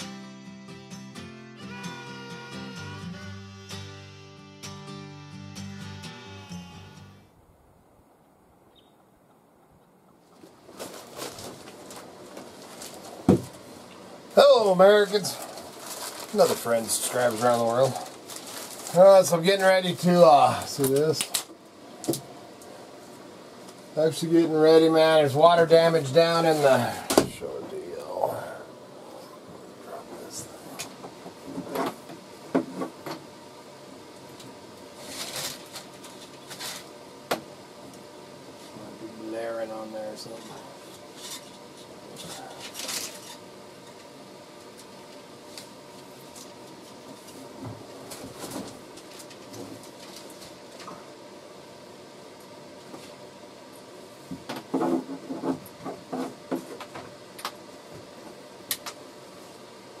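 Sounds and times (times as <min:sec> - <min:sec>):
rustling: 0:10.2 - 0:21.5, 0:34.9 - 0:37.0.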